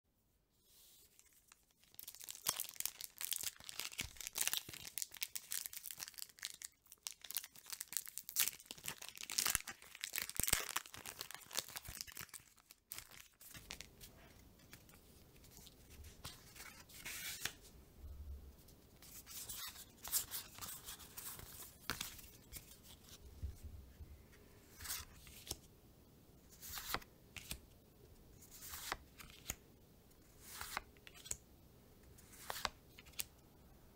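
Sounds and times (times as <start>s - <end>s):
foil wrapper crinkling and tearing: 1.8s - 13.4s.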